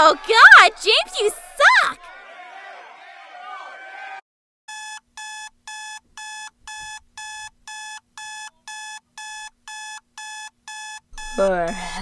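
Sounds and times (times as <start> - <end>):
phone alarm beeping: 4.7 - 12.0.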